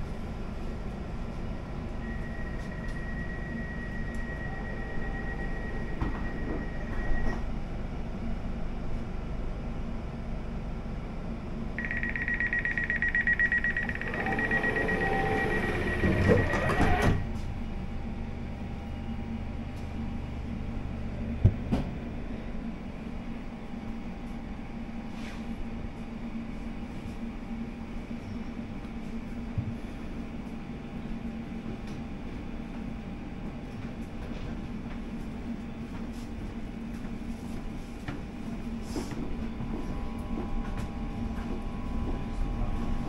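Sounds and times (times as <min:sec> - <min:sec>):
train carriage humming: 0:00.0 - 0:43.0
train doors closing: 0:02.2 - 0:07.6, 0:13.5 - 0:17.6
rapid high beeping: 0:11.8 - 0:16.8
steady high beep: 0:11.8 - 0:16.8.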